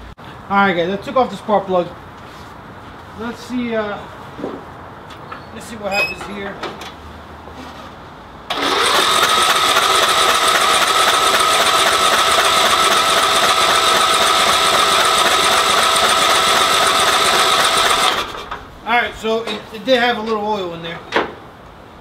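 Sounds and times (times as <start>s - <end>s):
engine cranking with starter whine: 8.5s - 18.7s.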